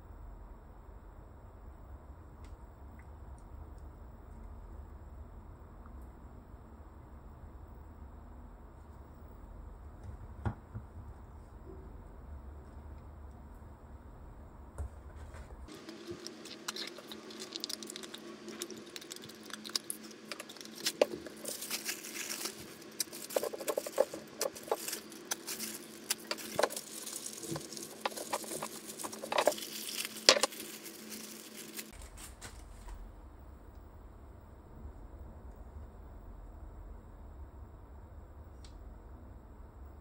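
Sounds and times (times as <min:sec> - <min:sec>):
plastic bag crinkling: 0:15.7 - 0:32.8.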